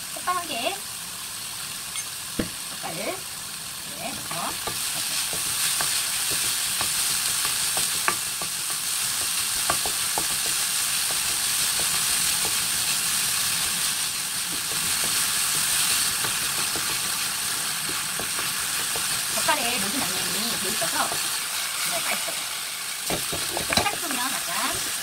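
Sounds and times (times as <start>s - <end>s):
food sizzling in oil: 0.0s - 25.0s
spatula scraping wok: 4.1s - 25.0s
taps against pan: 4.6s - 12.6s.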